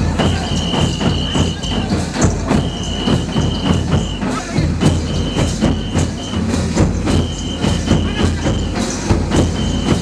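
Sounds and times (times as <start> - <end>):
barrel drums beaten: 0.0 - 10.0
pea whistle shrill blasts: 2.6 - 4.4, 5.1 - 6.4, 7.2 - 8.8, 9.5 - 10.0.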